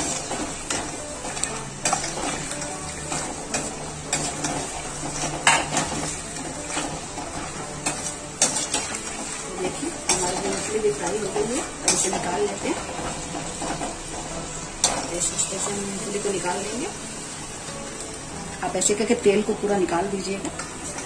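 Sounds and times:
steel skimmer scraping pan: 0:00.0 - 0:16.6
peanuts sizzling in hot oil: 0:00.0 - 0:21.0.

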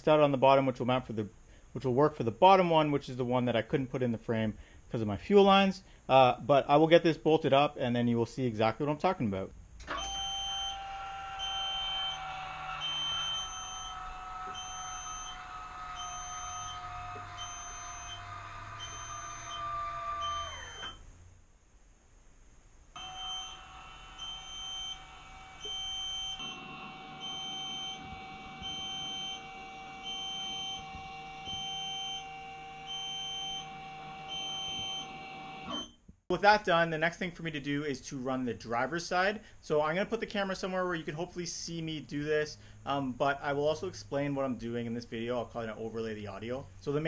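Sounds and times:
small electric motor whining: 0:09.8 - 0:21.0, 0:23.0 - 0:35.8
short electronic beep: 0:28.6 - 0:29.5, 0:35.7 - 0:36.0.

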